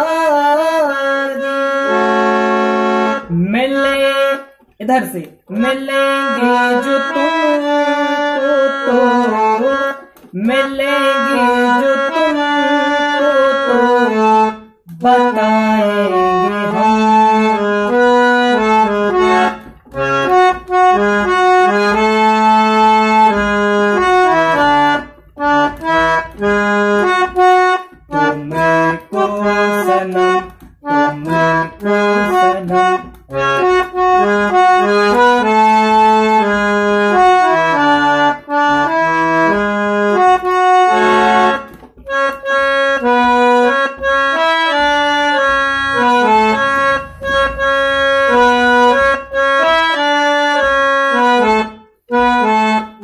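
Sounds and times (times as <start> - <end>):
harmonium melody: 0.0 - 53.0.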